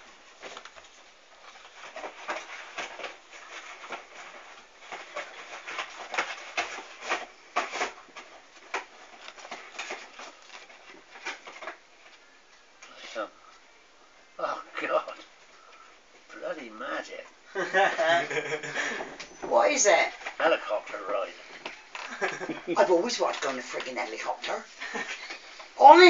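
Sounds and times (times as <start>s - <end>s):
paper rustling and crinkling: 0.0s - 12.4s, 20.0s - 25.8s.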